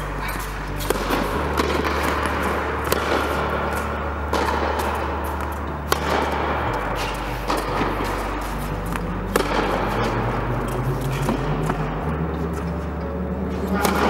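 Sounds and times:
background music with bass line: 0.0s - 14.0s
tennis balls struck by rackets: 0.0s - 14.0s.

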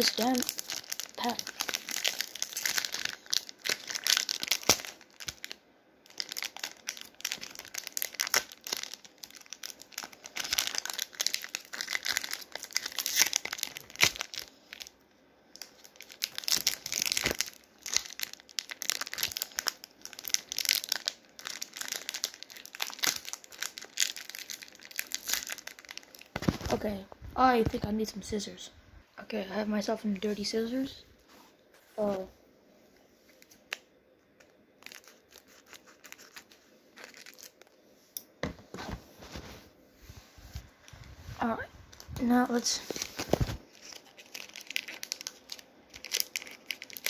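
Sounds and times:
foil wrapper crinkling: 0.0s - 14.9s, 15.6s - 26.8s, 34.4s - 37.8s, 41.9s - 47.0s
foil tearing: 34.8s - 37.6s.

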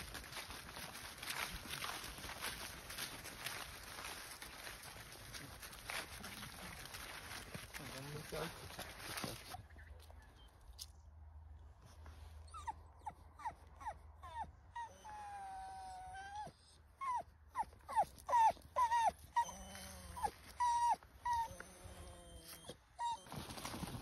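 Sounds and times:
dog whining: 12.4s - 23.4s.

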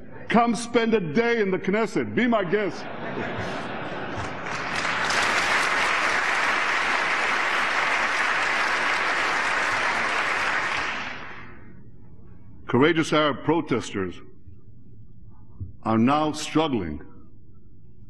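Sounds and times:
large audience applauding: 4.2s - 11.5s.

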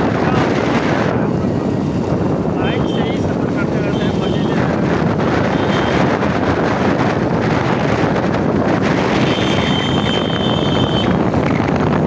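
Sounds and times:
road noise: 0.0s - 12.0s
wind buffeting microphone: 0.0s - 12.0s.

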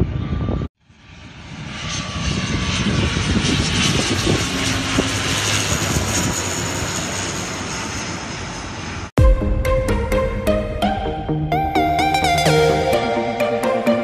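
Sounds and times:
turboprop airliner flying overhead: 0.0s - 9.2s.

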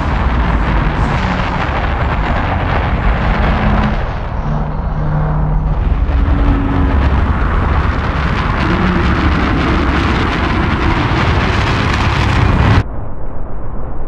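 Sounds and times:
rocket engines roaring: 0.0s - 14.0s.

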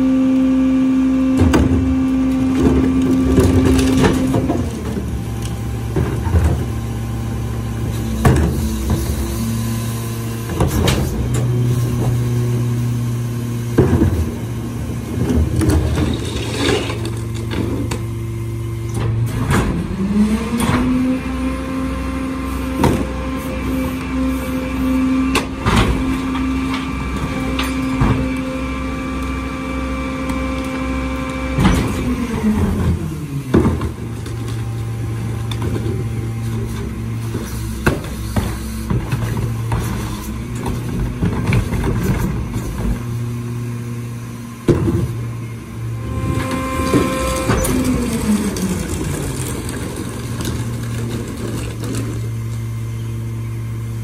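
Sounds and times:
diesel truck engine idling and revving: 0.0s - 54.0s
plastic carts clanking: 46.2s - 52.6s.

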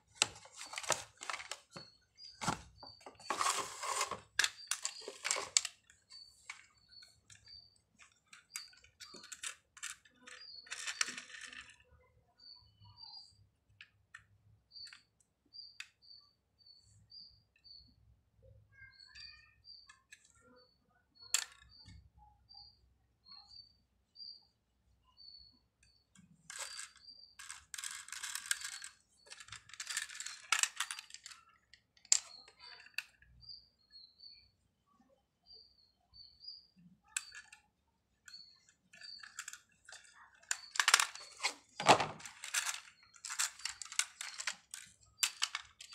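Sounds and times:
plastic toy clicks and rattles: 0.1s - 12.0s, 21.2s - 22.0s, 26.2s - 33.4s, 36.8s - 45.9s.

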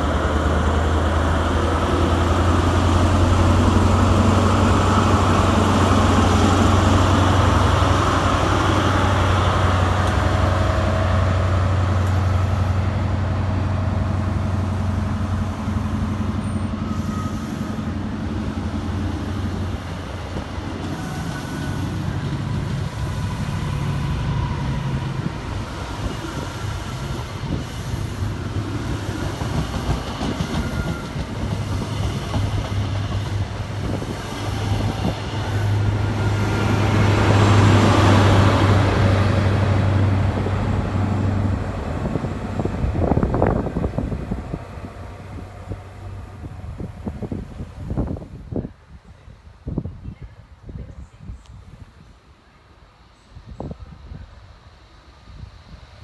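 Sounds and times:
diesel engine deep drone: 0.0s - 20.7s
train wheels clattering on track: 0.0s - 46.4s.

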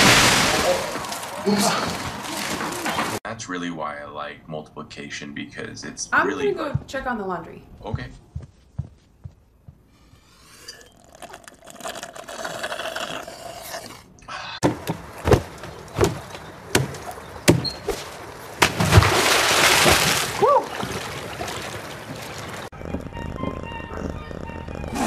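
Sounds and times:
person splashing into pool: 0.0s - 3.2s, 17.9s - 22.7s
sharp knocks: 14.6s - 17.7s.

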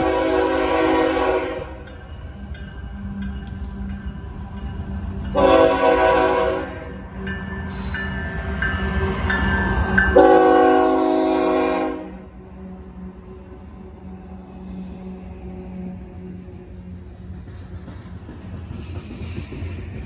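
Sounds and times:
locomotive horn blasts: 0.0s - 1.8s, 5.4s - 7.0s, 10.1s - 12.4s.

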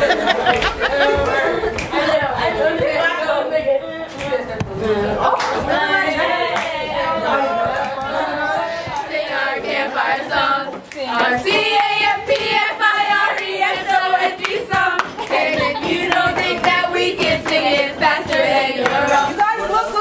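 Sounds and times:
young voices singing a chant: 0.0s - 20.0s
hand claps: 0.4s - 1.9s, 13.3s - 19.4s.

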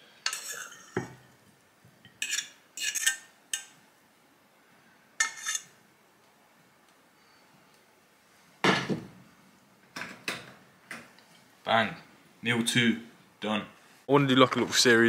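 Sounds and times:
fork scraping a frying pan: 0.2s - 1.1s, 2.1s - 3.7s, 5.2s - 5.7s.

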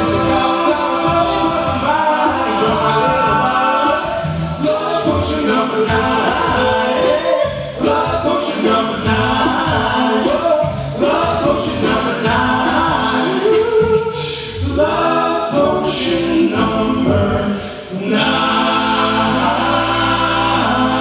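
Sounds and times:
a cappella group singing: 0.0s - 21.0s.

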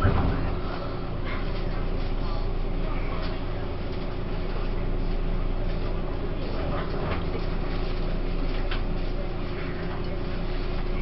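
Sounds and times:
train wheels rumbling on rails: 0.0s - 4.3s.

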